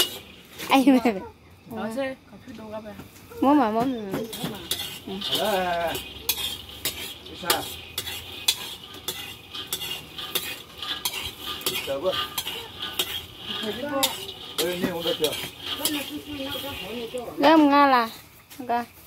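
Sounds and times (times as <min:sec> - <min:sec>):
metal ladle scraping a wok: 0:00.0 - 0:00.9, 0:04.2 - 0:18.2
beans rattling: 0:00.0 - 0:01.1, 0:03.5 - 0:18.3
light sizzling hiss: 0:00.0 - 0:19.0.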